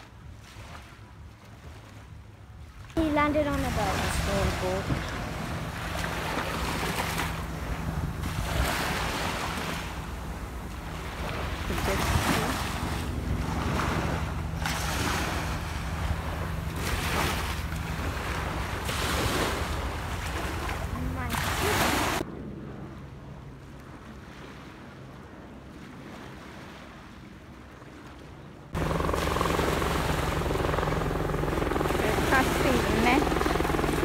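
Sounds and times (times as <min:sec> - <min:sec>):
small waves washing ashore: 0:00.0 - 0:34.0.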